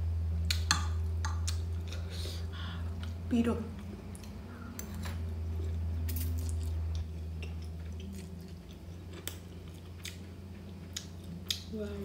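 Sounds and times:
low steady hum: 0:00.0 - 0:12.0
person chewing noodles: 0:03.8 - 0:11.6.

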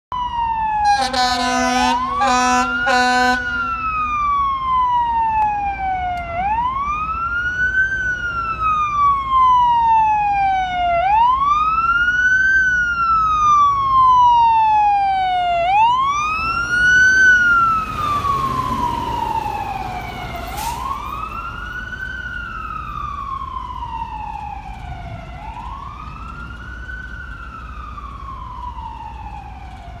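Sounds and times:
fire engine siren wailing: 0:00.1 - 0:30.0
truck engine: 0:00.5 - 0:09.3, 0:14.6 - 0:30.0
horn blast: 0:00.8 - 0:03.8.

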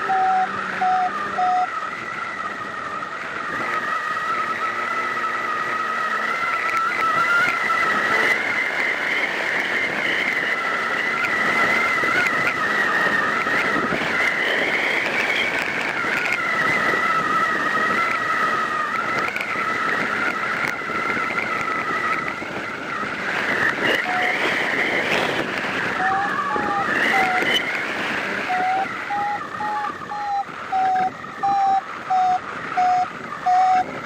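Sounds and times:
two-note whistle: 0:00.0 - 0:01.7, 0:28.5 - 0:33.9
strong wind on microphone: 0:06.8 - 0:34.0.

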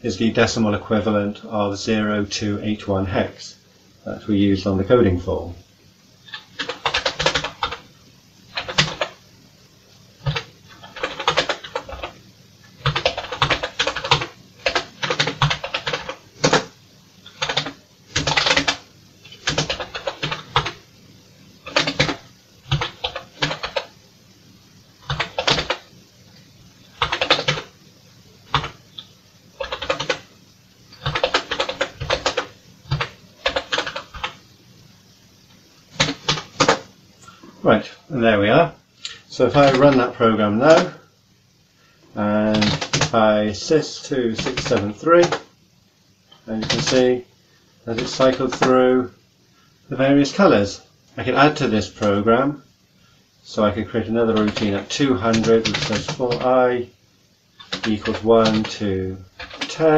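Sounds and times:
computer keyboard typing: 0:06.3 - 0:07.8, 0:08.5 - 0:09.2, 0:10.2 - 0:12.2, 0:12.8 - 0:20.8, 0:21.6 - 0:23.9, 0:25.0 - 0:25.9, 0:26.8 - 0:27.8, 0:28.5 - 0:30.3, 0:30.9 - 0:34.4, 0:36.0 - 0:36.8, 0:39.1 - 0:40.1, 0:42.5 - 0:43.2, 0:44.3 - 0:45.5, 0:46.6 - 0:47.1, 0:47.9 - 0:48.8, 0:54.3 - 0:56.5, 0:57.6 - 0:59.9.

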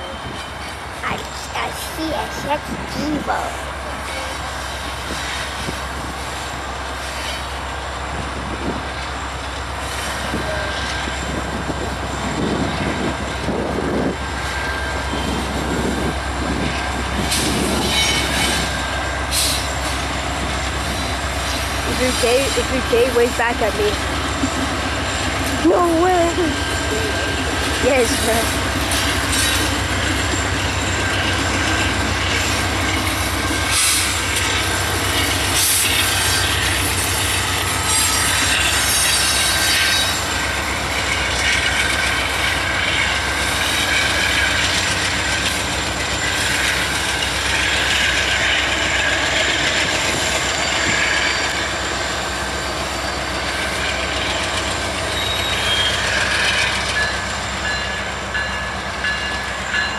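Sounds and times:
diesel locomotive rumble: 0:00.0 - 0:59.9
wheels on rails: 0:00.0 - 0:59.9
wheels squealing: 0:16.8 - 0:59.9.

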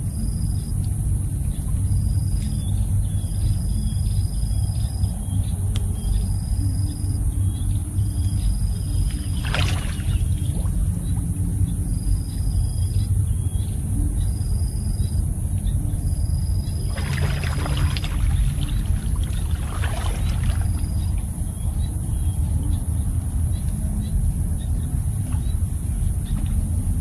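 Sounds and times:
steady low rumble: 0:00.0 - 0:27.0
water splashing from wading: 0:08.9 - 0:11.4, 0:16.7 - 0:21.4.

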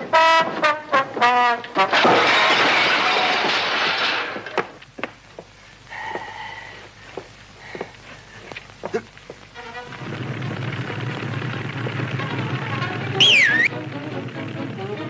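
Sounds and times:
trombone blast: 0:00.0 - 0:02.3, 0:12.8 - 0:13.8
crashing and clattering: 0:00.4 - 0:05.2.

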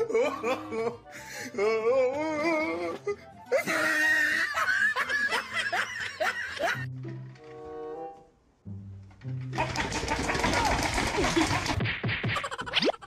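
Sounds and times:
background music: 0:00.0 - 0:13.0
people laughing: 0:03.6 - 0:06.9, 0:09.6 - 0:11.8.

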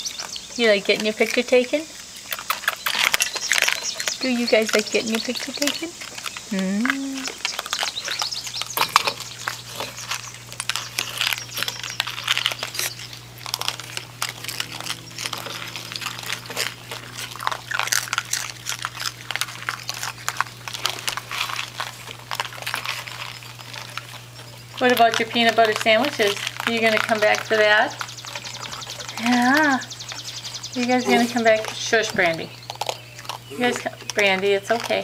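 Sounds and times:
animals crunching cereal: 0:00.0 - 0:35.0
steady low hum: 0:00.0 - 0:35.0.

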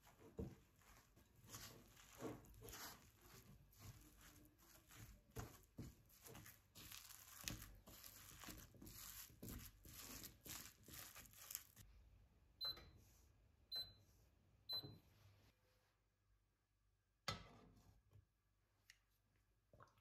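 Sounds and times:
spatula scraping a glass bowl: 0:00.9 - 0:11.8
short beeps from hob controls: 0:12.6 - 0:13.0, 0:13.7 - 0:14.1, 0:14.7 - 0:15.0.

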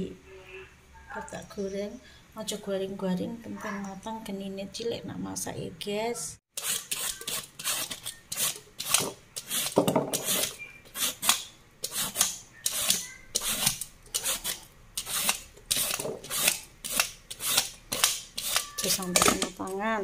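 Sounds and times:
peeler scraping gourd skin: 0:06.5 - 0:19.8.

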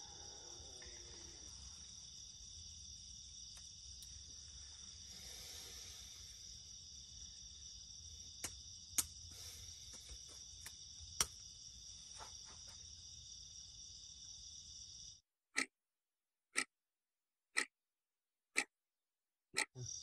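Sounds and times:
crickets chirring: 0:00.0 - 0:15.2, 0:19.8 - 0:20.0.

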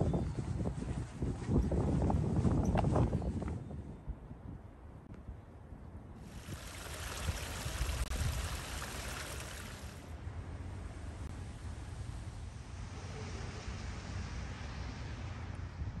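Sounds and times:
low wind rumble: 0:00.0 - 0:16.0
rushing hiss: 0:06.2 - 0:10.0.

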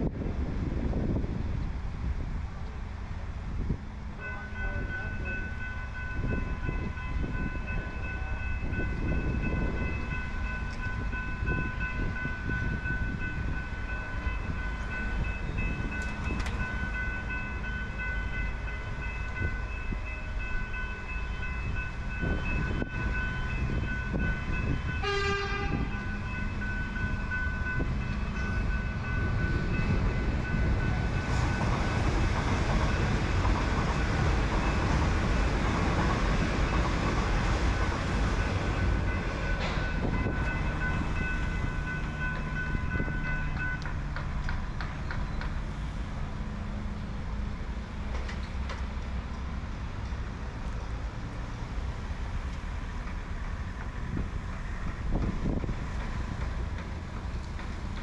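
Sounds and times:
electric train rumble: 0:00.0 - 0:58.0
street noise and wind: 0:00.0 - 0:58.0
level crossing warning bells: 0:04.2 - 0:44.1.

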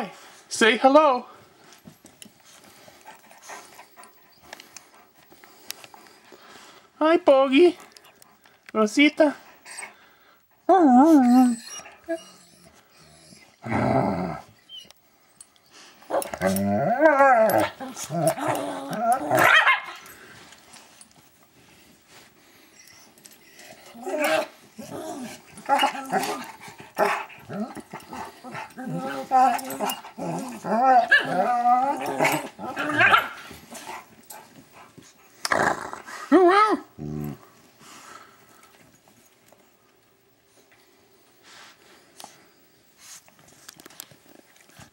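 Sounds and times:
dog growling: 0:13.6 - 0:14.5, 0:16.3 - 0:19.5, 0:23.9 - 0:33.4, 0:35.4 - 0:37.5
dogs yowling: 0:16.1 - 0:20.0, 0:23.9 - 0:33.6.

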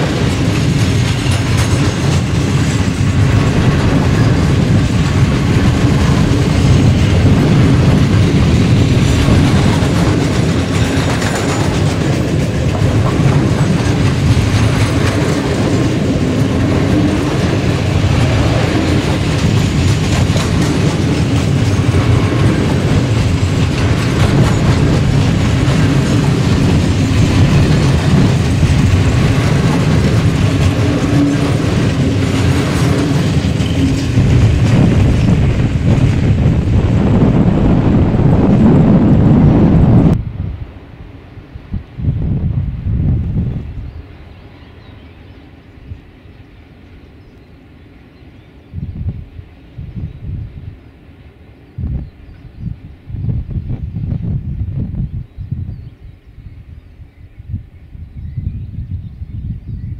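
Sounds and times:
wheels clattering over rail joints: 0:00.0 - 0:40.2
freight train rumbling past: 0:00.0 - 0:59.9.

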